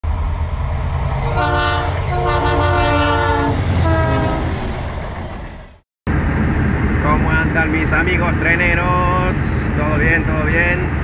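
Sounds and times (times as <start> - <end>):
low engine rumble: 0.0 - 11.0
locomotive horn blasts: 1.2 - 4.6.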